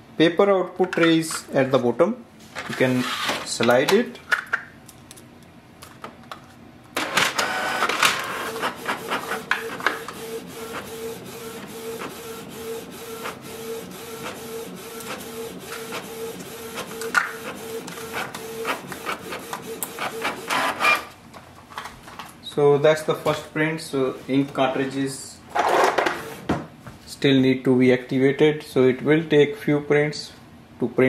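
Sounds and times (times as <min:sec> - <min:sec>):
printer paper feed clatter: 0:07.0 - 0:21.1, 0:25.5 - 0:26.5.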